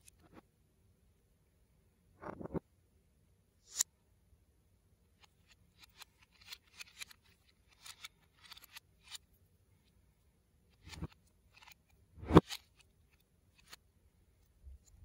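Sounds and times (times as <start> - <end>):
plastic bricks clicking and rattling: 5.2 - 9.2.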